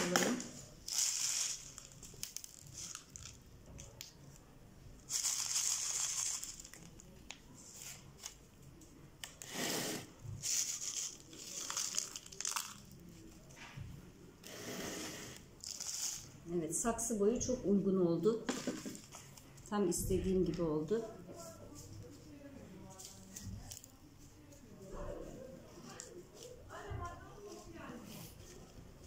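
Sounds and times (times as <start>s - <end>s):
clay pebbles poured onto soil: 9.5s - 13.6s, 14.4s - 16.4s.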